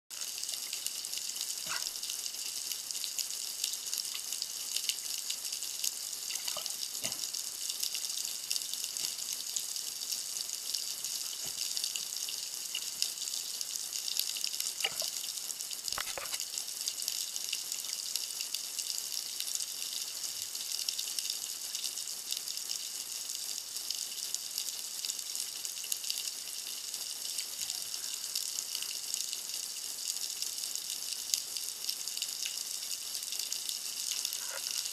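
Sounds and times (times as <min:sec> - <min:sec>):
underwater crackling hiss: 0:05.9 - 0:13.6, 0:14.7 - 0:17.0, 0:27.2 - 0:29.3, 0:33.8 - 0:34.9.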